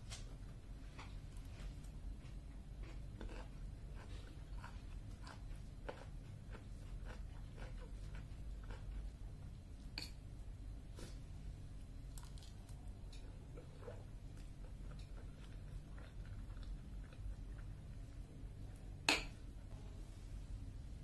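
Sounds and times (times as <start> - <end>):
chewing food: 0.9 - 9.5, 12.2 - 18.2.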